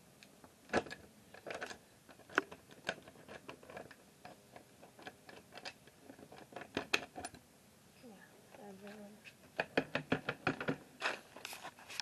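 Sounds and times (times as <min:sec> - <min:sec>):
hand tapping wooden panels: 0:09.5 - 0:10.9.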